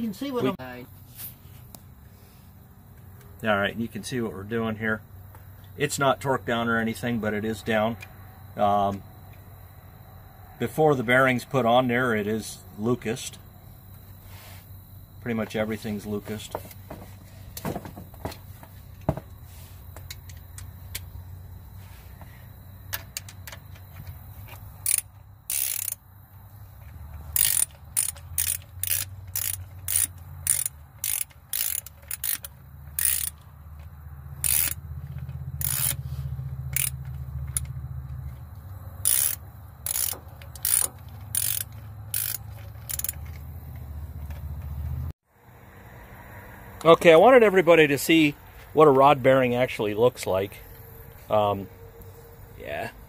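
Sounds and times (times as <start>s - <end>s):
hand ratchet clicking: 24.8s - 26.0s, 27.3s - 33.4s, 34.4s - 36.0s, 36.7s - 37.7s, 39.0s - 43.4s.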